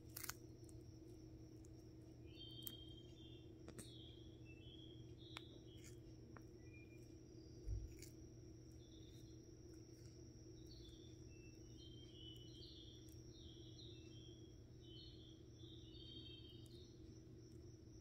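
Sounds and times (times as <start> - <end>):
tortoise biting lettuce: 0.0 - 3.1, 5.6 - 12.4
low steady hum: 0.0 - 18.0
faint high chirps: 1.6 - 18.0.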